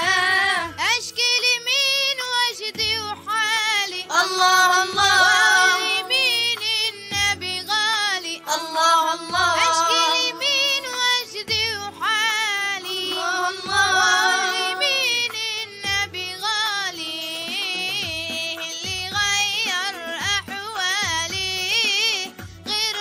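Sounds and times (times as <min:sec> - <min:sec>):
boy singing: 0:00.0 - 0:23.0
low drum beat: 0:09.3 - 0:10.6.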